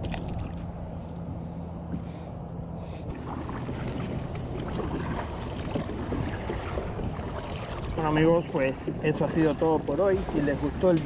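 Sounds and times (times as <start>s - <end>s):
paddle strokes splashing: 2.8s - 11.0s
water sloshing against kayak hull: 3.1s - 11.0s
wind on microphone: 3.1s - 11.0s.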